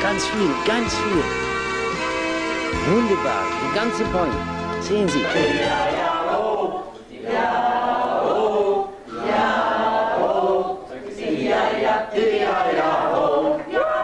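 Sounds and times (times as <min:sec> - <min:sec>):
voices singing together: 0:04.8 - 0:14.0.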